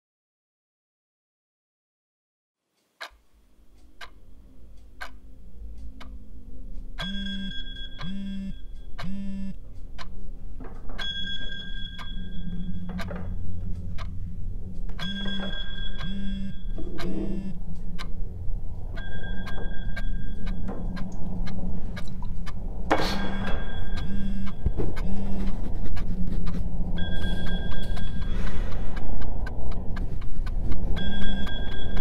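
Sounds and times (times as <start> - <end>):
clock ticking: 3.0 - 32.0
low rumble: 12.3 - 32.0
phone vibration buzzes: 16.0 - 17.6, 24.0 - 25.8.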